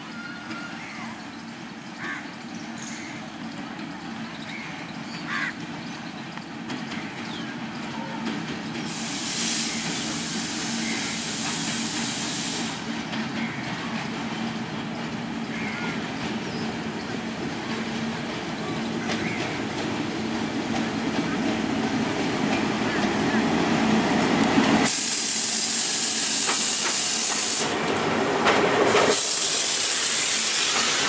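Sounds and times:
diesel locomotive engine running: 0.0s - 31.0s
loud hiss: 8.8s - 13.0s, 24.1s - 27.8s, 28.7s - 31.0s.

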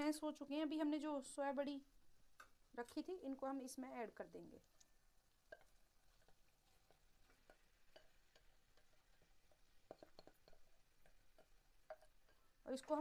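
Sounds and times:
spatula tapping and scraping bowl: 5.4s - 13.0s.

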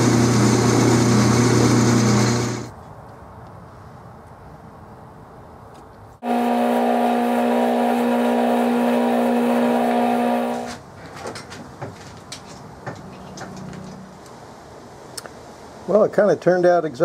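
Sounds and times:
lathe drilling whine: 0.0s - 2.7s, 6.2s - 10.8s
low machine hum: 6.2s - 10.7s.

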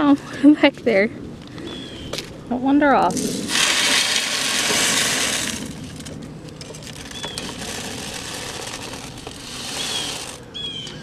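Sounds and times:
feed pouring into feeder: 3.5s - 6.1s, 7.0s - 10.4s.

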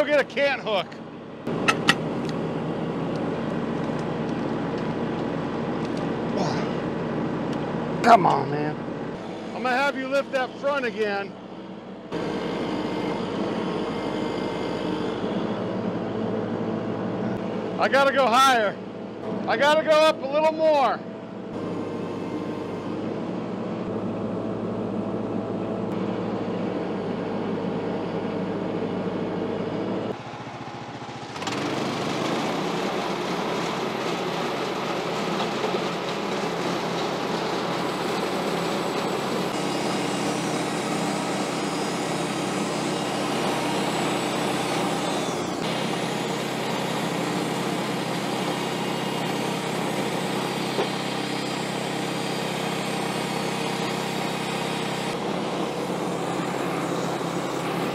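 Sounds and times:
gas engine running: 0.0s - 20.0s, 21.0s - 57.9s
band saw blade cutting log: 1.5s - 2.1s, 12.2s - 15.5s, 35.2s - 57.9s.

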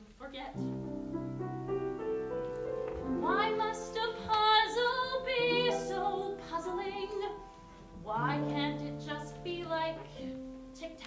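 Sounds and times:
woman singing: 3.2s - 11.0s.

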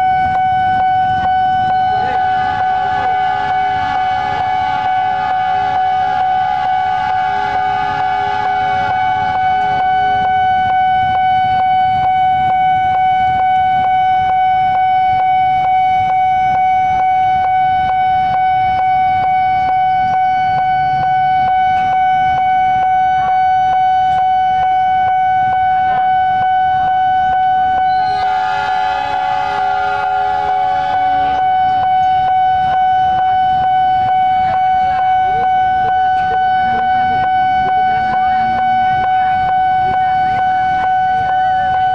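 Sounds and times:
train horn: 0.0s - 24.0s, 26.0s - 34.3s
level crossing alarm tone: 0.0s - 41.9s
low rumble of traffic: 0.0s - 41.9s.

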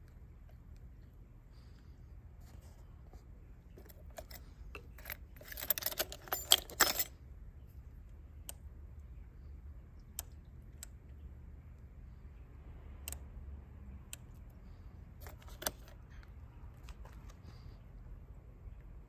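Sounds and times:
keys jangling: 3.8s - 7.1s.

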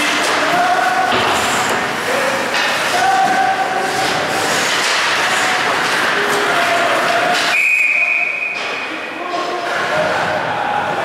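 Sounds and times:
skates scraping ice: 0.0s - 7.5s.

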